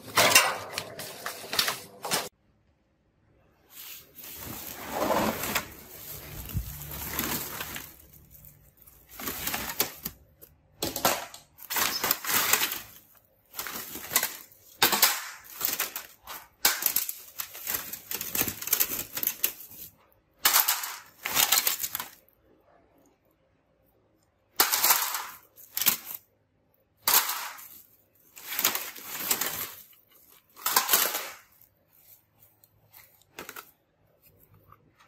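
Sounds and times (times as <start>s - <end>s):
plastic sack rustling: 0.0s - 2.3s, 3.6s - 10.5s, 11.6s - 19.9s, 27.3s - 33.8s.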